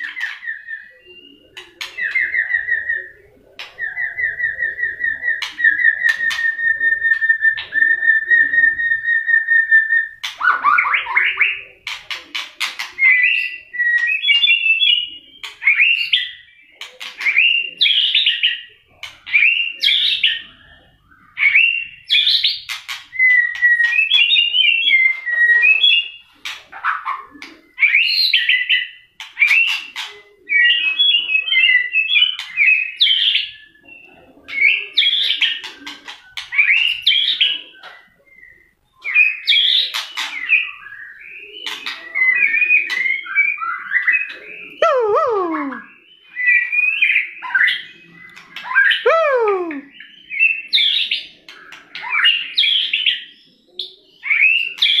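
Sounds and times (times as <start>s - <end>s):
bird singing whistled phrases: 0.0s - 3.2s, 23.2s - 26.1s, 36.3s - 53.3s.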